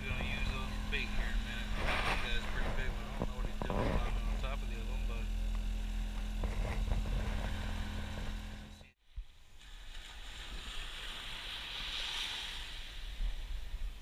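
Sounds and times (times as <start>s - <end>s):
low hum: 0.0s - 12.0s
wind and surf: 9.4s - 14.0s.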